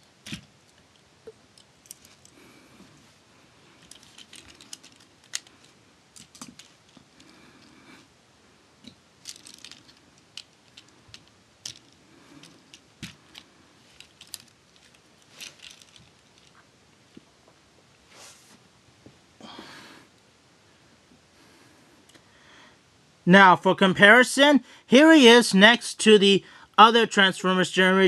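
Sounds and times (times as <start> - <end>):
handling rustle: 0.2 - 7.8, 8.8 - 16.7
small plastic clicks: 8.8 - 16.5.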